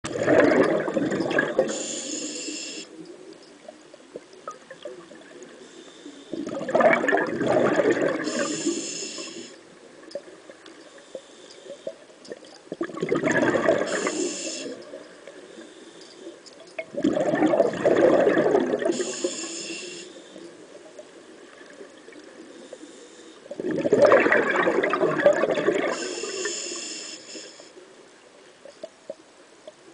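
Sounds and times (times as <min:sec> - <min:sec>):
gurgling exhaled bubbles: 0:00.0 - 0:01.8, 0:06.3 - 0:08.6, 0:12.7 - 0:15.0, 0:16.8 - 0:19.2, 0:23.5 - 0:26.4
regulator high hiss: 0:01.7 - 0:03.0, 0:08.2 - 0:09.6, 0:13.9 - 0:14.9, 0:19.0 - 0:20.4, 0:26.0 - 0:27.7.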